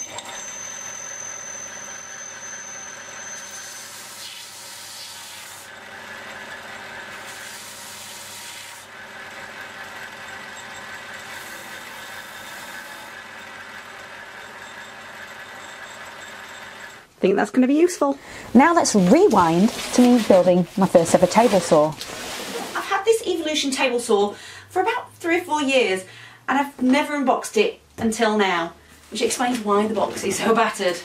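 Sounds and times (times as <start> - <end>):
bench sander motor hum: 0.1 - 16.6.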